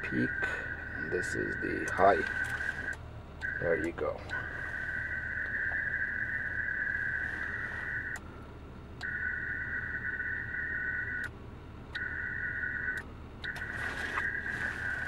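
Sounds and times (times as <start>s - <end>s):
radio high-pitched tone: 0.0s - 8.2s
low cab rumble: 0.0s - 15.0s.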